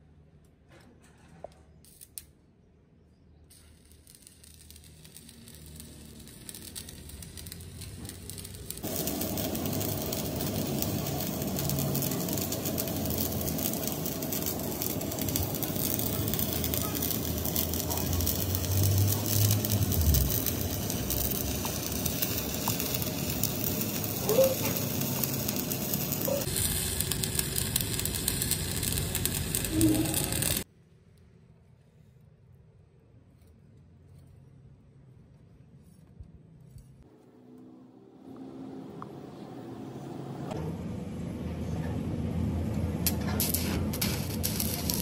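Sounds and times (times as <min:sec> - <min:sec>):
welding arc crackling: 0:03.5 - 0:30.7, 0:43.0 - 0:45.0.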